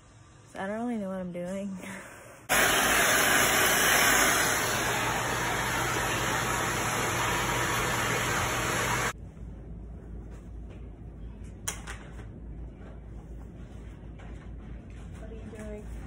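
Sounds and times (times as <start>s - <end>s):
vacuum cleaner running: 2.5s - 9.2s.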